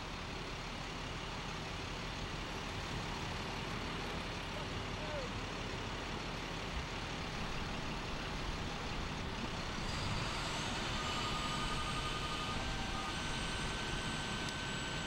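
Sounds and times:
truck engine and machinery running: 0:00.0 - 0:15.0.

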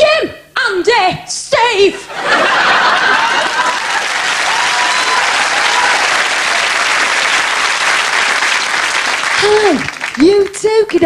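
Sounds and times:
audience applauding: 0:02.4 - 0:10.7.

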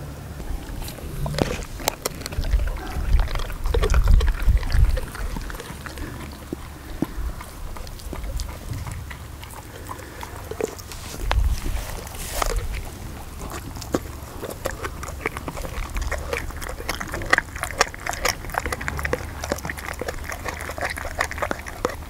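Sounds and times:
dog chewing meat: 0:00.3 - 0:22.0
low rumbling thuds: 0:00.4 - 0:05.6, 0:07.0 - 0:09.4, 0:18.4 - 0:20.6.

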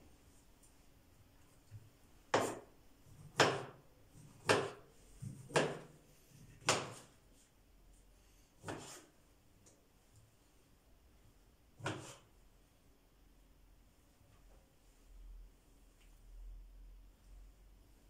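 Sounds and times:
knife slicing on plastic board: 0:08.6 - 0:09.1, 0:11.8 - 0:12.3.

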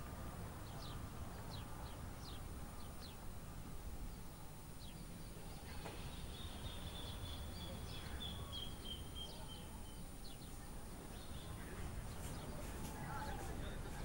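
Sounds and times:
birds chirping: 0:00.0 - 0:03.4, 0:04.0 - 0:14.0
low rumble of outdoor air: 0:00.0 - 0:14.0.

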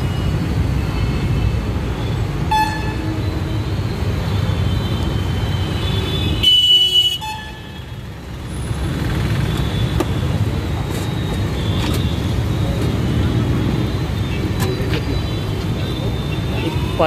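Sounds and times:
street traffic rumbling: 0:00.0 - 0:17.0
vehicle horns honking: 0:02.4 - 0:08.1, 0:13.2 - 0:17.0.

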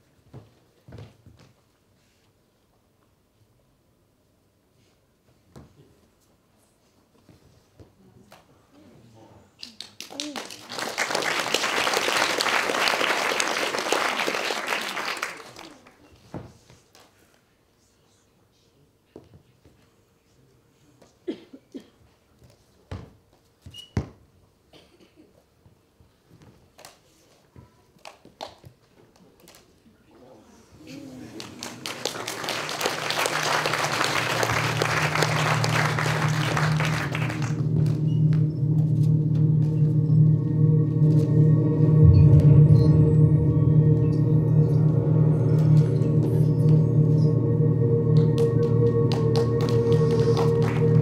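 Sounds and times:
audience applauding: 0:09.8 - 0:16.0, 0:31.2 - 0:39.7, 0:48.1 - 0:51.0
low droning music: 0:32.2 - 0:51.0.

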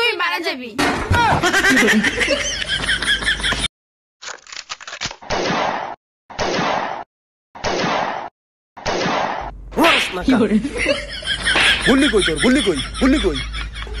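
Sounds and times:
person's voice: 0:09.8 - 0:10.8.

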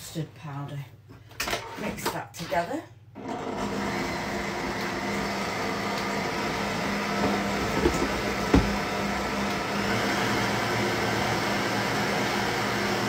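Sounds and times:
stand mixer motor humming: 0:03.4 - 0:13.0.

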